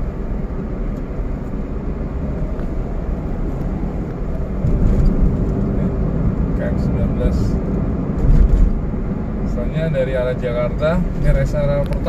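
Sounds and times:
road and engine noise in car: 0.0s - 12.0s.

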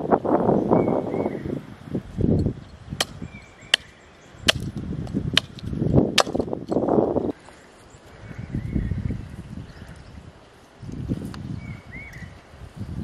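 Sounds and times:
axe chopping wood: 3.0s - 6.6s.

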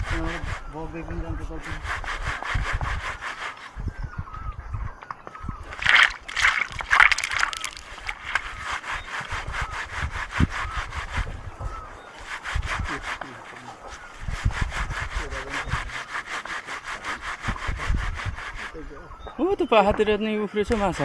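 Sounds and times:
leaves scraped against stone: 5.7s - 18.8s.

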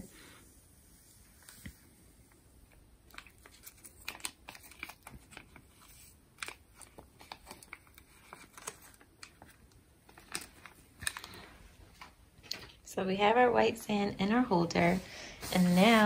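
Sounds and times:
plastic bag crinkling: 3.1s - 12.8s
sand pouring: 15.2s - 16.0s.

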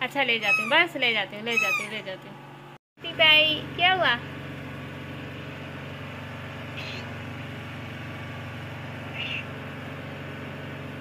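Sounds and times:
low background hum: 0.0s - 10.2s
kittens mewing: 1.5s - 2.0s.

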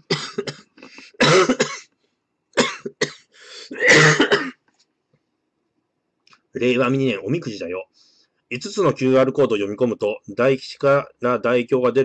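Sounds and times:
man coughing: 0.1s - 1.9s, 2.6s - 4.6s.

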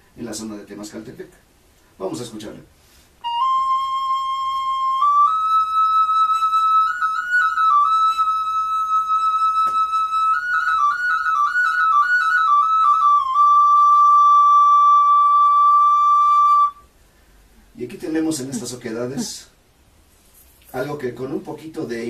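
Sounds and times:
whistle-like flute melody: 3.2s - 16.9s.

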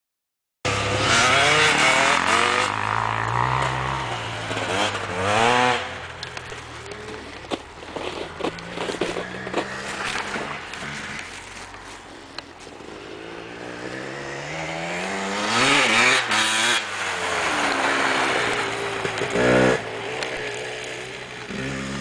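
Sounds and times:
dirt bike engine passing: 0.7s - 22.0s.

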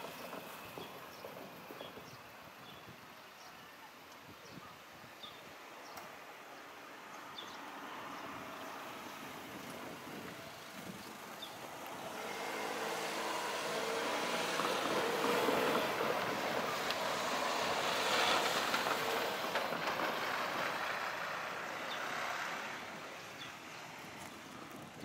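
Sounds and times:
train rumbling: 0.0s - 3.0s, 9.1s - 25.0s.

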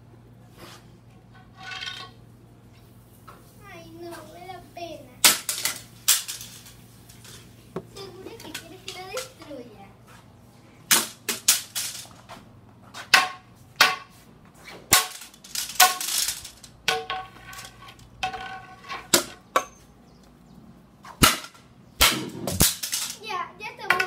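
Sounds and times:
pole whacking cardboard box: 21.1s - 22.9s.

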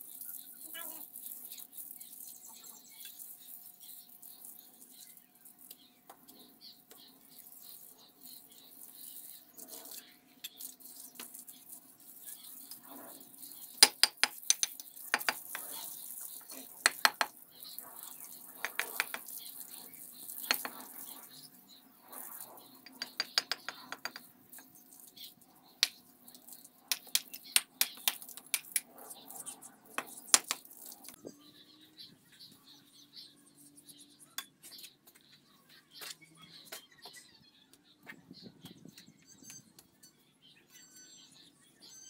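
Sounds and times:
trowel tapping bricks: 13.8s - 15.8s, 16.8s - 17.4s, 18.6s - 19.3s, 20.4s - 20.8s, 22.9s - 24.3s, 26.9s - 28.9s, 30.0s - 30.7s.

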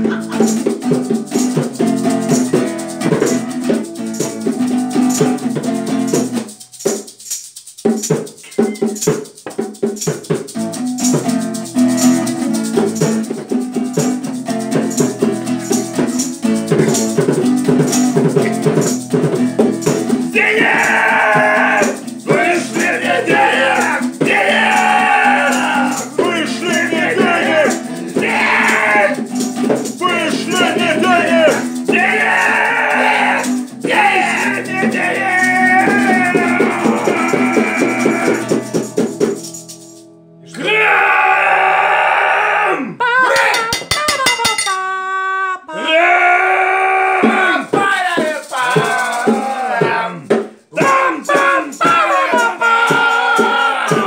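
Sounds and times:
acoustic guitar strumming: 0.0s - 7.0s, 8.0s - 40.6s
shaker rattling: 0.0s - 40.1s, 43.4s - 44.8s, 47.7s - 49.8s, 50.5s - 54.0s
man singing loudly: 20.3s - 29.3s, 30.0s - 38.7s, 45.6s - 54.0s.

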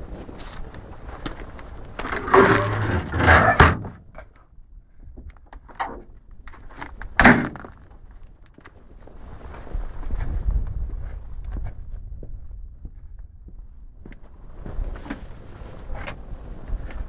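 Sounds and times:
sliding door rumbling on track: 2.0s - 4.1s
door slamming shut: 2.2s - 4.0s.

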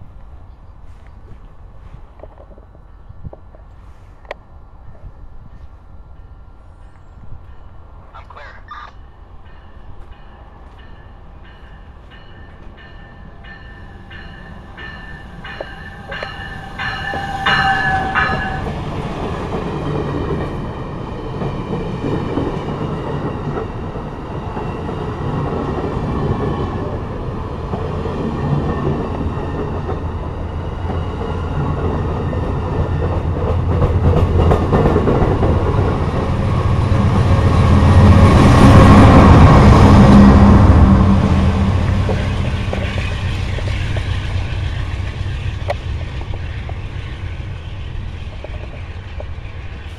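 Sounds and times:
train cars and wheels rumbling: 0.0s - 49.9s
crossing bell ringing: 6.2s - 19.1s.

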